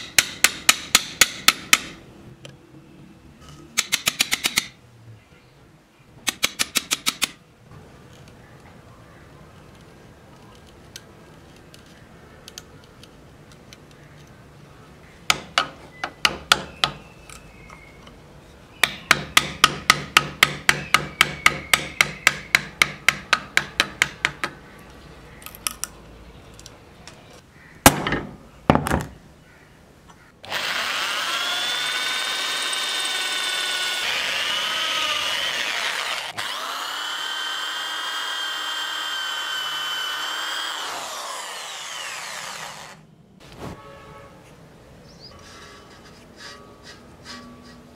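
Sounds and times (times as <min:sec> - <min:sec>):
electric drill whining: 0:30.4 - 0:43.0.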